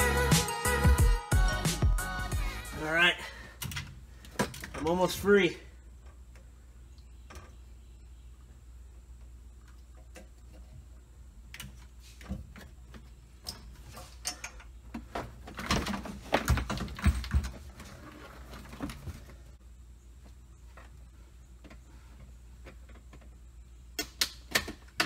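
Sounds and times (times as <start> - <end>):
steady low hum: 0.0 - 15.4.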